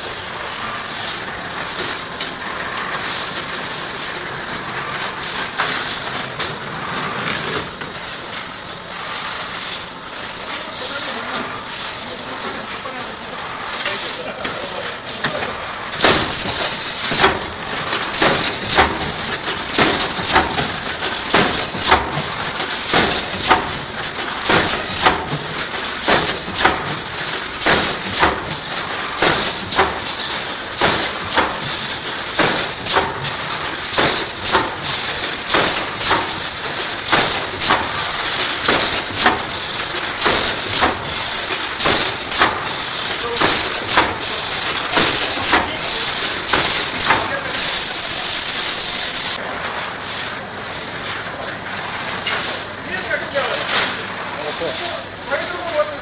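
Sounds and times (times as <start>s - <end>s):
welding heads clanking: 0.0s - 56.0s.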